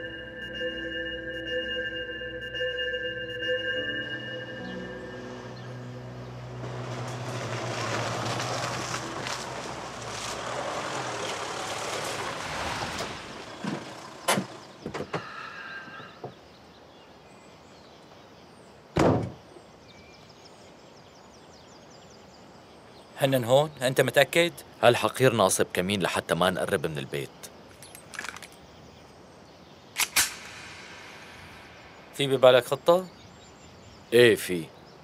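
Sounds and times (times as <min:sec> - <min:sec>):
pickup truck engine and tyres: 0:04.8 - 0:15.9
car door slam: 0:19.0 - 0:19.4.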